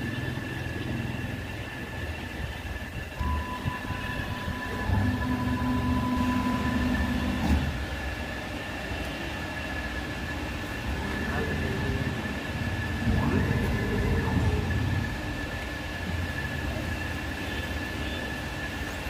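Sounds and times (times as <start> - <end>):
motors whining: 0.0 - 8.2, 10.6 - 15.6
low machine hum: 0.0 - 18.9
faint steady high tone: 2.4 - 7.4.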